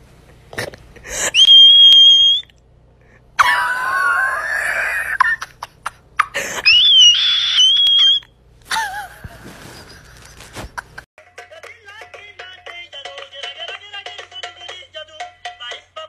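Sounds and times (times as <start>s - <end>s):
high-pitched shrieks: 6.6s - 8.3s.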